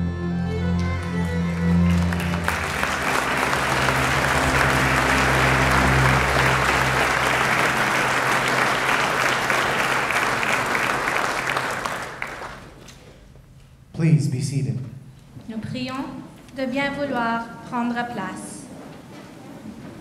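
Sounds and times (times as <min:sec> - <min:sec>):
low held music chord: 0:00.0 - 0:10.2
audience applauding: 0:00.8 - 0:12.9.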